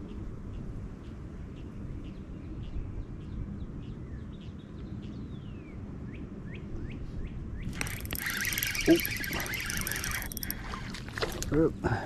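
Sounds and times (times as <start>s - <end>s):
birds chirping: 7.6s - 11.5s
falling whistle: 7.8s - 10.5s.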